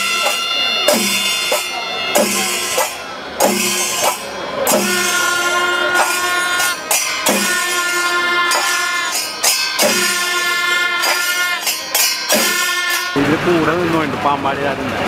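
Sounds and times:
loud drum hits: 0:00.0 - 0:05.3, 0:07.2 - 0:07.8
drums and cymbals: 0:00.0 - 0:13.4
wind instrument melody: 0:00.0 - 0:13.4.

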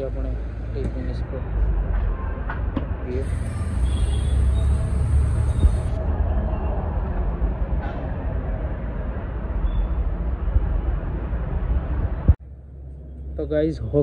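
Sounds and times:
street traffic rumble: 0:00.0 - 0:14.0.

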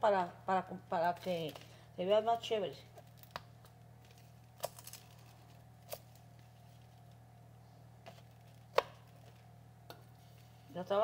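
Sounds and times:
faint steady hum: 0:00.0 - 0:11.0
garlic cloves clicking and tapping: 0:08.7 - 0:09.0.

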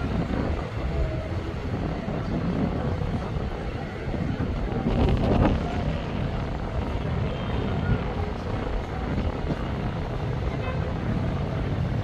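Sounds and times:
faint outdoor background noise: 0:00.0 - 0:12.0
wind buffeting microphone: 0:00.0 - 0:12.0.

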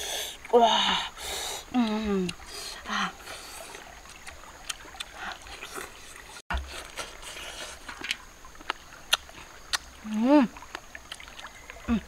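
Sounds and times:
chewing clicks: 0:08.0 - 0:09.9
lip smacks: 0:08.0 - 0:09.9.

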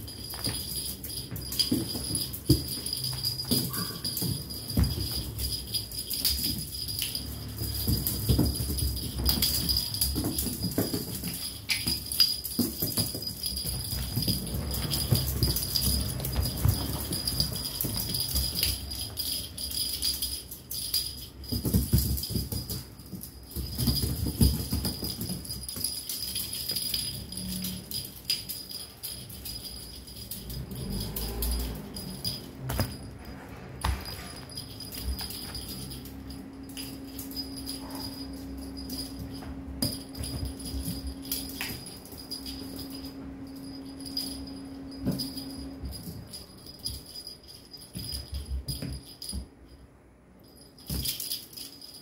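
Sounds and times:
kittens scrambling on cushion: 0:00.0 - 0:19.5
bright steady jingling: 0:00.0 - 0:52.0
steady low hum: 0:00.0 - 0:52.0.

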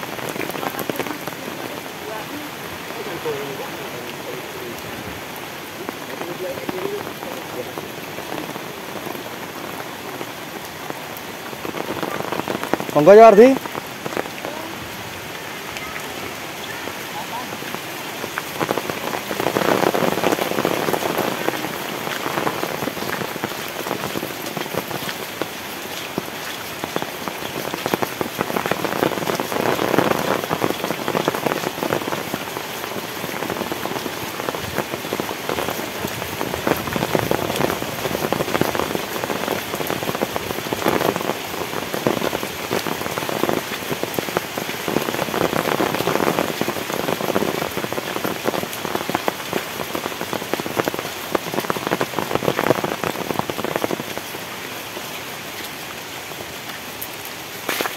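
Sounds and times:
heavy rain pouring: 0:00.0 - 0:57.9.

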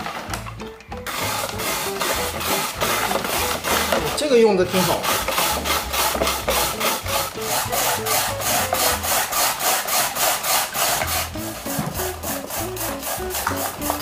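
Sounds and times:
grater rasping through radish: 0:01.1 - 0:14.0.

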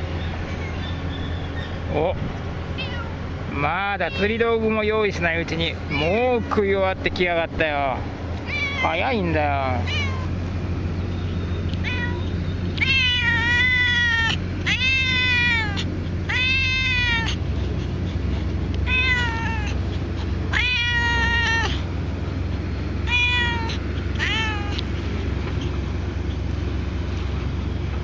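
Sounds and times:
cat meowing: 0:02.8 - 0:03.2, 0:04.0 - 0:04.3, 0:05.9 - 0:06.6, 0:08.4 - 0:09.1, 0:09.8 - 0:10.3, 0:11.8 - 0:17.4, 0:18.8 - 0:19.8, 0:20.5 - 0:21.8, 0:23.0 - 0:24.9.

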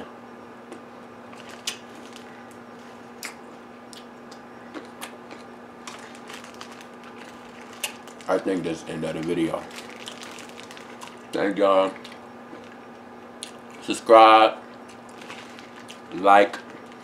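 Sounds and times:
steady low hum: 0:00.0 - 0:17.0
person chewing: 0:00.7 - 0:08.3.

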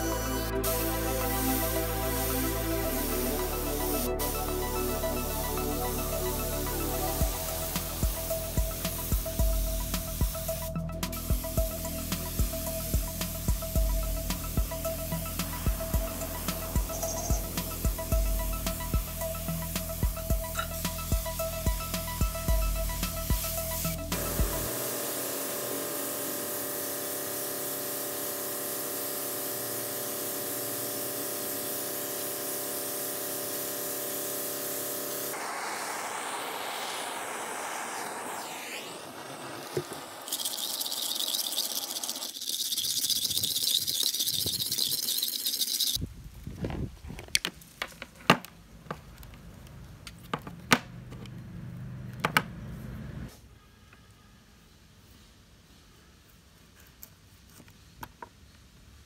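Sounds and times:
spray gun hissing: 0:00.0 - 0:46.0
butane torch hissing: 0:23.4 - 0:42.7.

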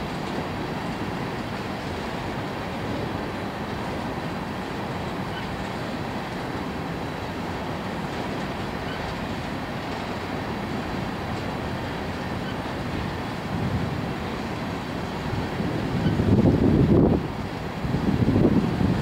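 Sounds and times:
train wheels on rail: 0:00.0 - 0:13.5.

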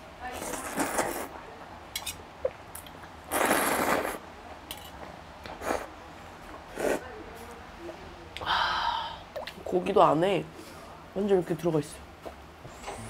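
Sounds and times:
loud noodle slurp: 0:03.3 - 0:04.2.

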